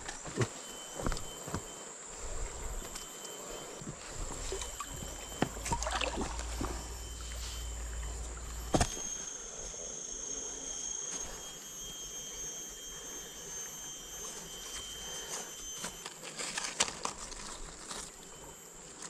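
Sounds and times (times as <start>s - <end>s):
high insect drone: 0.0s - 19.0s
clicks and rustles among plants: 14.7s - 18.3s.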